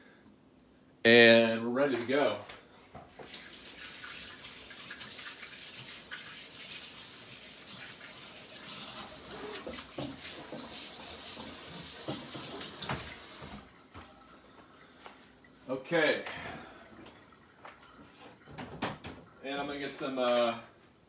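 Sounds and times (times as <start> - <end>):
water running from a tap: 3.1 - 14.6.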